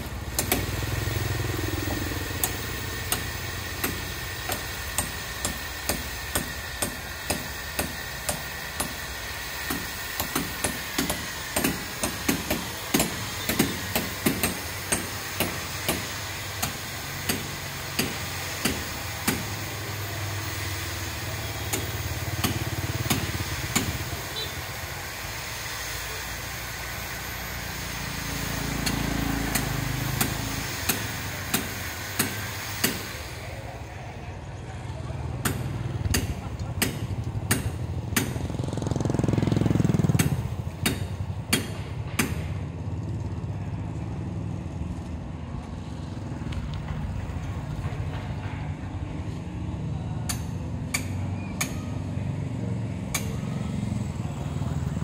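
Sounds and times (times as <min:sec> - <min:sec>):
low engine hum: 0:00.0 - 0:08.4, 0:27.0 - 0:55.0
construction hammering: 0:00.0 - 0:25.2, 0:26.4 - 0:34.0, 0:35.0 - 0:42.8, 0:46.6 - 0:55.0.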